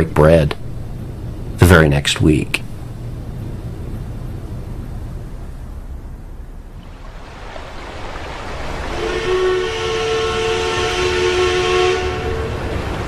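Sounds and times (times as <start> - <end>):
low rumble: 2.4 - 9.0
steamboat whistle: 8.9 - 13.0.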